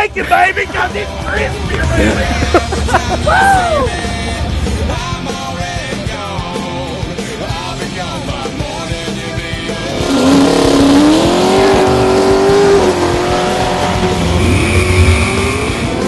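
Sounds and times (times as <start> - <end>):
music: 0.0 - 16.0
drag car engine revving: 9.6 - 16.0.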